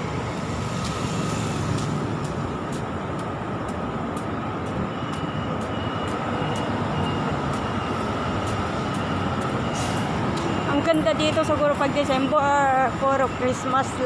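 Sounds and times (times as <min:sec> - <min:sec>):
city traffic rumble: 0:00.0 - 0:14.0
faint high beeps: 0:04.7 - 0:11.5.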